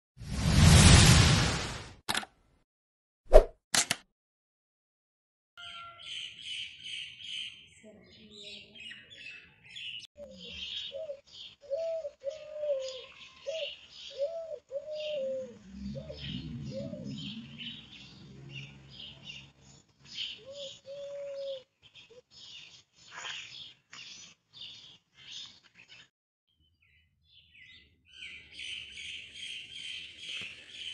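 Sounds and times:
small birds chirping: 5.6s - 30.9s
dove cooing: 10.2s - 17.8s, 20.4s - 21.6s
low rumble: 15.6s - 19.0s.

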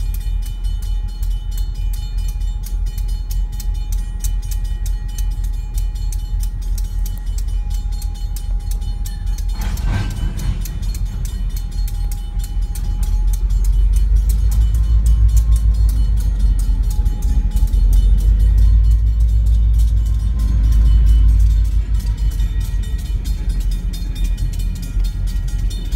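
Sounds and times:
rapid ringing clicks: 0.0s - 25.9s
train wheels rumbling on rail: 0.0s - 25.9s
wheels squealing: 0.0s - 25.9s.

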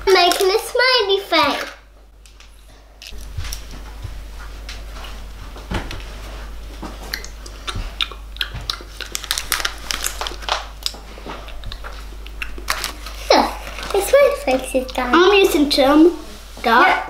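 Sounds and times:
plastic sweet packets crinkling: 0.0s - 3.3s, 8.8s - 15.2s.

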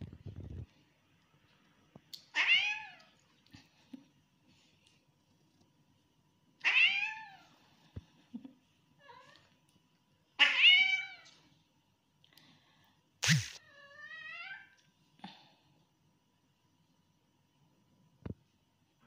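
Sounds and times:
cat meowing: 6.6s - 7.5s.

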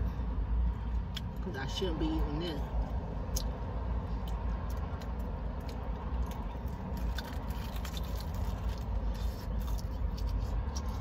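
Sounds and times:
steady low rumble: 0.0s - 11.0s
wet chewing: 2.8s - 11.0s
crispy chicken crackling: 4.3s - 11.0s.

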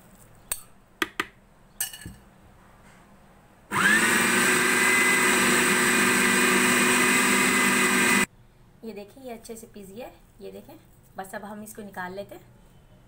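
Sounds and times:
knocks and clinks: 1.8s - 2.2s
electric food chopper motor whining: 3.7s - 8.3s.

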